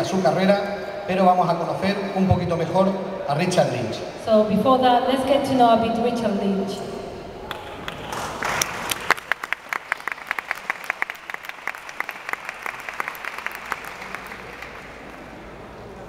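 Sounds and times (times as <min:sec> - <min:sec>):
audience applauding: 0:07.4 - 0:16.0.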